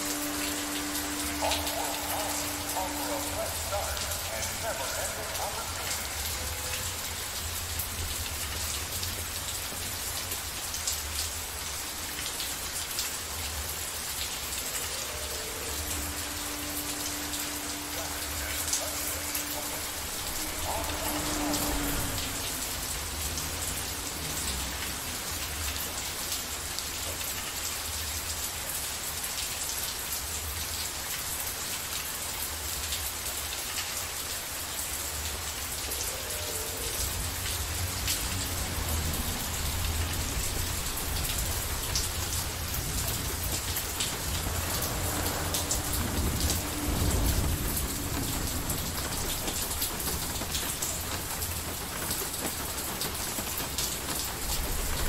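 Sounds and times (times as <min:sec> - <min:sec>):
steady rain: 0:00.0 - 0:55.0
distant thunder rumble: 0:38.6 - 0:55.0.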